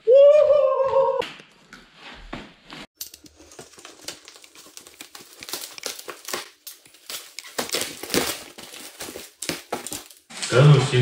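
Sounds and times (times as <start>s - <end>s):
packaging crinkling and rustling: 3.1s - 11.0s.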